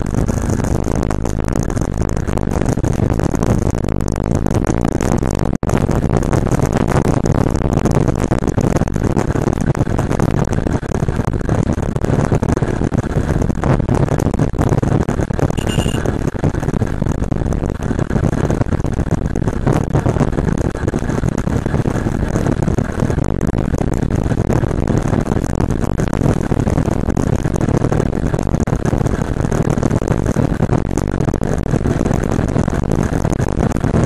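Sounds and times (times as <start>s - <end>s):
motorcycle engine running: 0.0s - 34.0s
wind rushing over microphone: 0.0s - 34.0s
high squeak: 15.6s - 16.1s.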